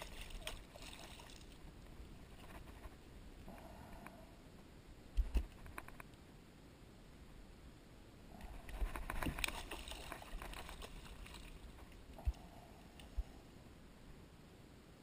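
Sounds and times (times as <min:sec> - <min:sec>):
faint rustling and splashing: 0:00.0 - 0:04.2, 0:08.3 - 0:13.6.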